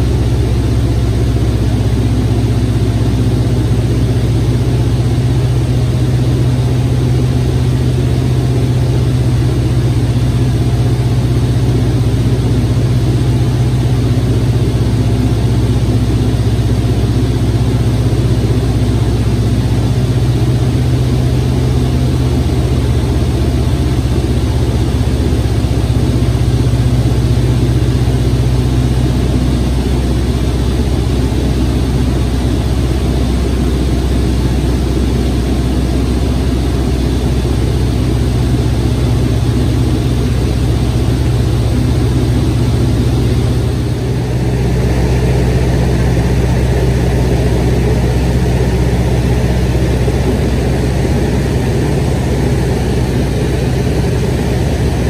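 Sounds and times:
propeller airplane engine drone: 0:00.0 - 0:55.0.

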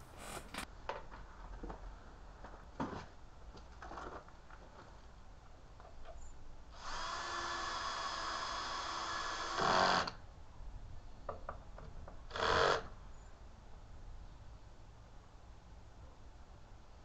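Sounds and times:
electric drill running: 0:06.8 - 0:10.1.

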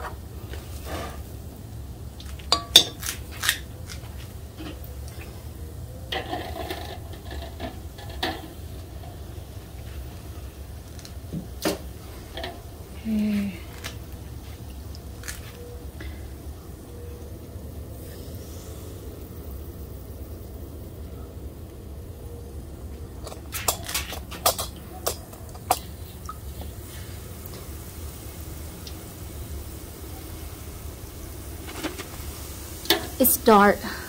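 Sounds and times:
steady low hum: 0:00.0 - 0:34.0
metal utensils clinking on pots: 0:02.5 - 0:03.1, 0:06.1 - 0:09.2, 0:32.9 - 0:33.4.

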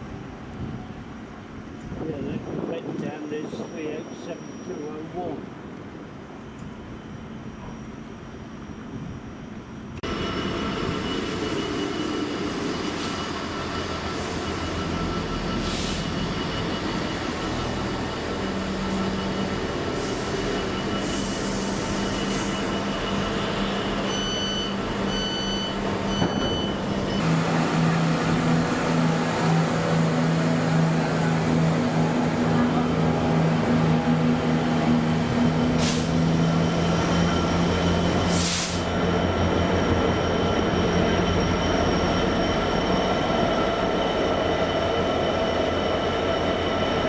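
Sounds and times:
diesel locomotive engine droning: 0:00.0 - 0:47.0
wheels rumbling on rail: 0:00.0 - 0:47.0
short high beeps: 0:24.0 - 0:27.2.

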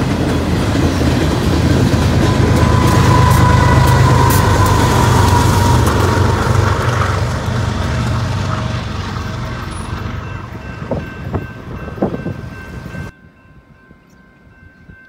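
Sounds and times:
diesel train rumbling: 0:00.0 - 0:15.0
crossing signal tones: 0:02.0 - 0:06.6.

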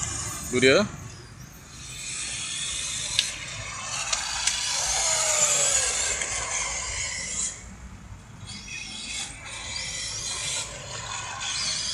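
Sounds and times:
rc car motors whirring: 0:01.8 - 0:07.4.

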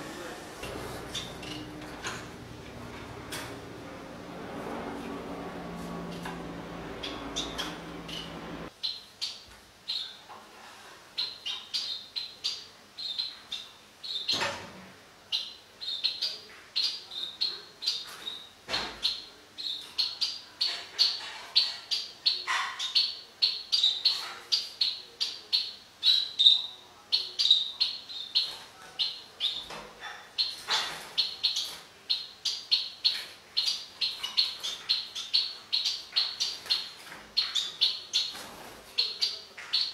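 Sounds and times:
finches chirping: 0:00.6 - 0:03.4, 0:06.0 - 0:10.2, 0:15.3 - 0:39.9.

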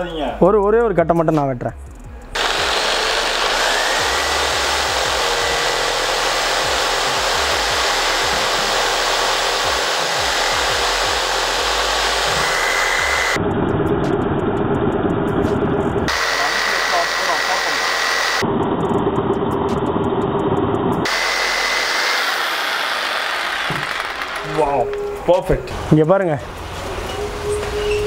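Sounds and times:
jigsaw cutting wood: 0:02.4 - 0:13.4, 0:16.1 - 0:18.4, 0:21.1 - 0:24.5.

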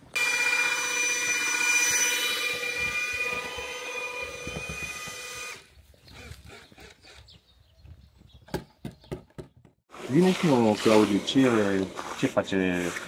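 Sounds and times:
electric drill mixing paddle whine: 0:00.0 - 0:07.3, 0:09.9 - 0:12.1.

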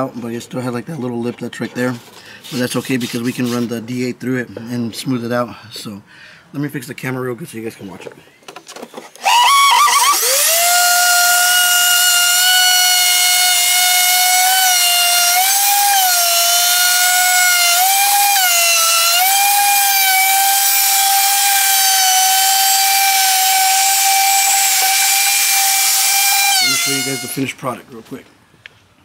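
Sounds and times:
electric router whining: 0:09.2 - 0:27.6.

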